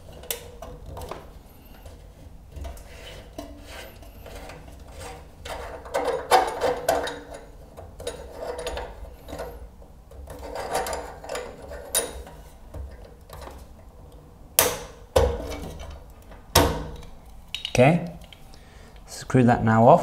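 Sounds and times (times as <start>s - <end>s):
plastic valve head scraping: 0.0s - 13.8s.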